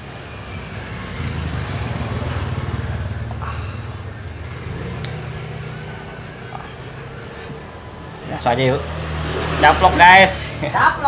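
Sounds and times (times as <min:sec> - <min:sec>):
vehicle engine rumble: 0:00.0 - 0:11.0.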